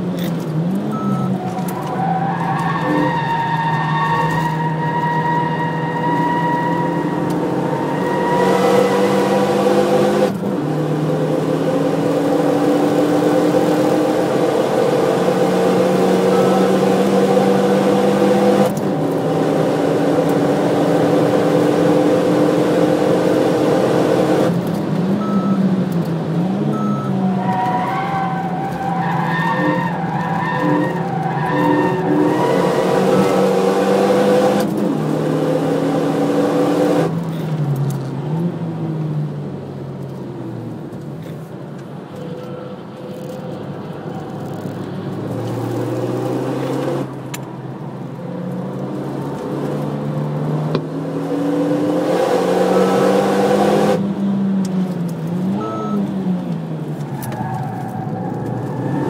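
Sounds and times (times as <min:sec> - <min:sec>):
car engine driven hard: 0:00.0 - 0:59.0.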